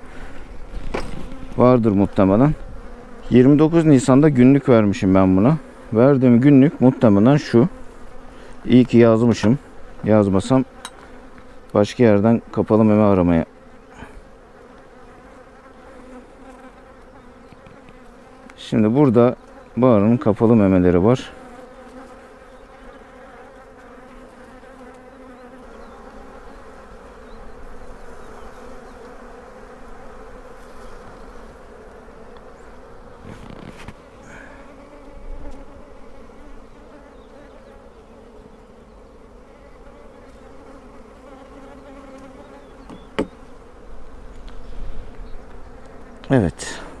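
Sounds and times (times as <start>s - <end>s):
honeybees humming: 0.0s - 47.0s
short knocks: 42.9s - 43.4s.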